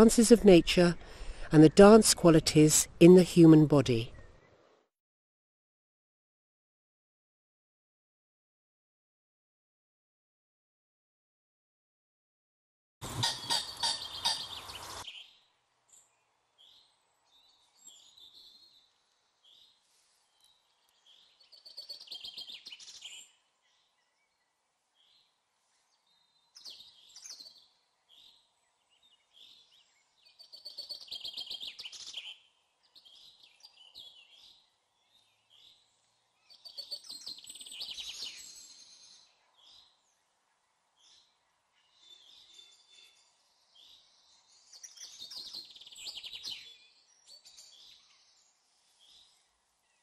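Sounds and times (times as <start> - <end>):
songbirds chirping: 0.0 - 4.9, 13.0 - 50.0
bird rapid trilling: 13.0 - 15.0.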